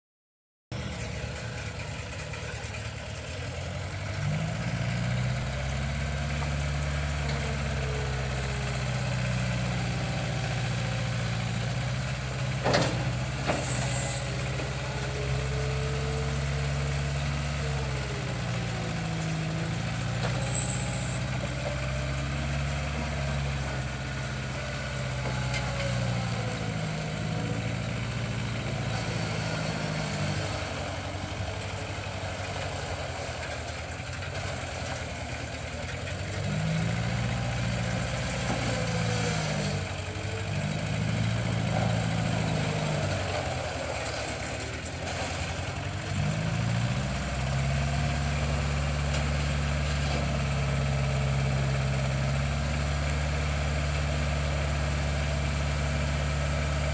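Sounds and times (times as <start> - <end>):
diesel engine running: 0.7 - 56.9
high-pitched squeaks: 20.4 - 21.3.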